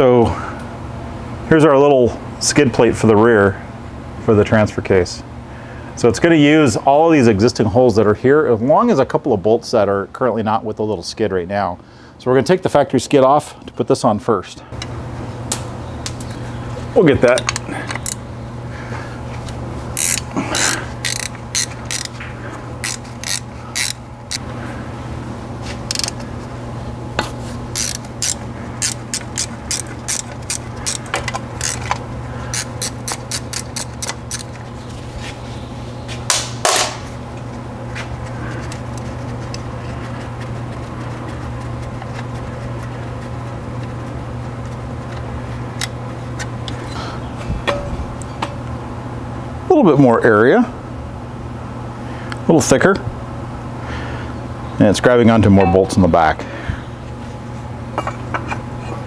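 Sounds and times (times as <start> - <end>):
steady low hum: 0.0 - 59.0
ratchet wrench clicking: 17.3 - 18.2, 20.0 - 22.2, 22.8 - 24.4, 25.9 - 26.2, 27.8 - 34.6.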